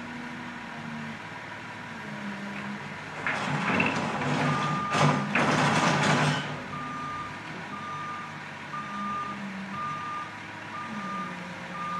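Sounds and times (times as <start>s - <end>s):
diesel engine running: 0.0s - 11.9s
backup alarm beeping: 4.4s - 5.1s, 6.7s - 11.9s.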